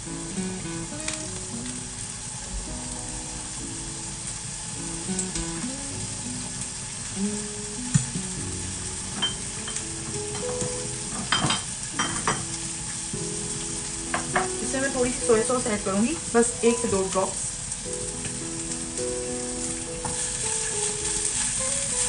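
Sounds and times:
vegetables sizzling in oil: 0.0 - 22.0
wooden spatula knocking on pan: 14.1 - 14.6, 20.0 - 20.2.

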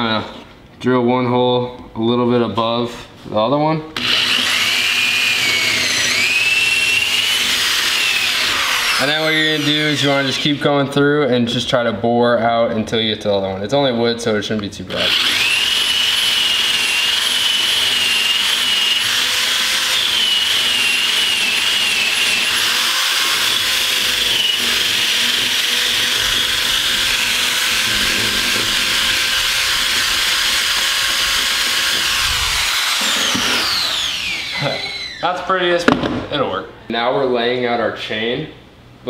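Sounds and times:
power drill boring through wood: 4.0 - 10.8, 14.9 - 35.3.

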